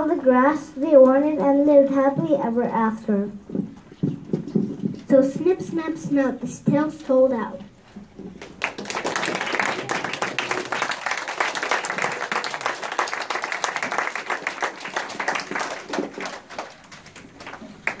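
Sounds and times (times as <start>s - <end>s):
children and adults applauding: 8.4s - 18.0s.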